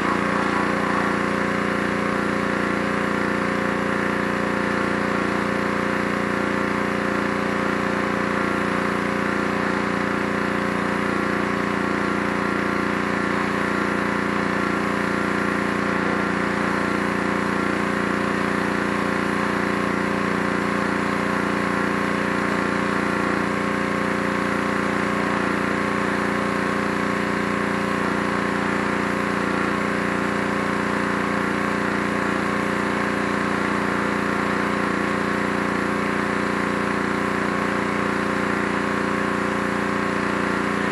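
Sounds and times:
water spraying from wand: 0:00.0 - 0:05.2
pressure washer engine running: 0:00.0 - 0:40.9.

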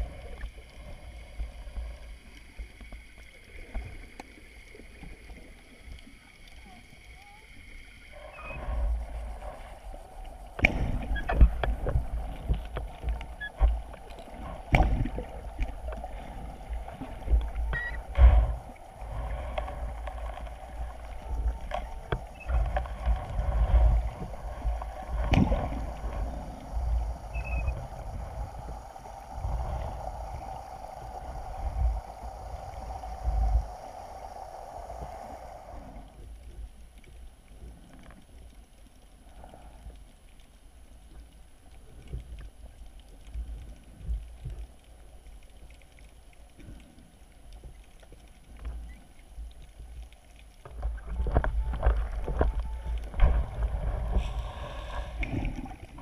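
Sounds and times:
steady hum: 0:07.6 - 0:36.4, 0:50.8 - 0:56.0.

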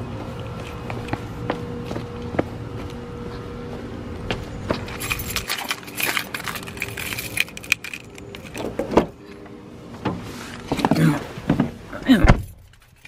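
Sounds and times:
car keys jangling: 0:04.9 - 0:09.0.

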